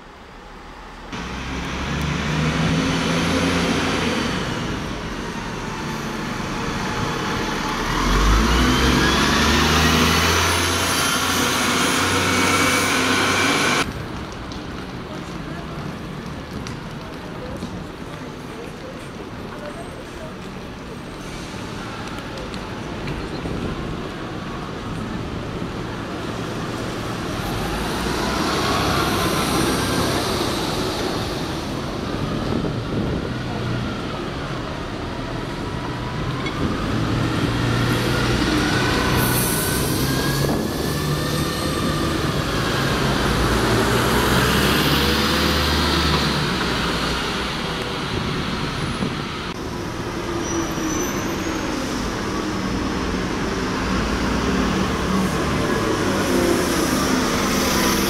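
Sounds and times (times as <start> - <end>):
buses passing: 0.0 - 58.0
diesel engines accelerating: 0.9 - 17.2, 21.0 - 58.0.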